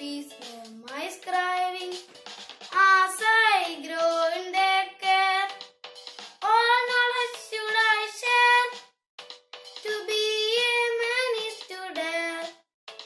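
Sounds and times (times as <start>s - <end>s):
boy singing: 0.0s - 2.0s, 2.7s - 5.6s, 6.4s - 8.8s, 9.8s - 12.6s.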